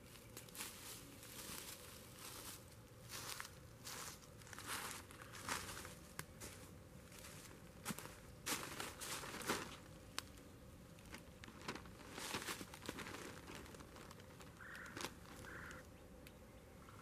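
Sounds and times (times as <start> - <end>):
rustling in dry leaves: 0.0 - 15.9
plastic bag crinkling: 8.5 - 15.8.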